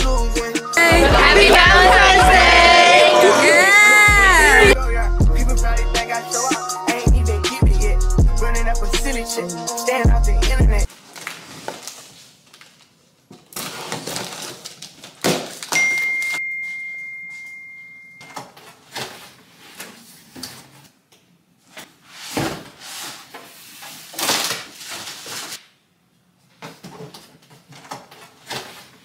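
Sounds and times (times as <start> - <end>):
steady high tone: 0.8 - 4.8.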